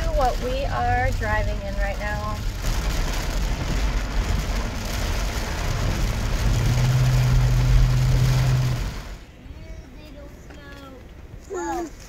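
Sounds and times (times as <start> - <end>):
rain hitting windshield: 0.0 - 9.3
road and engine rumble: 0.0 - 12.0.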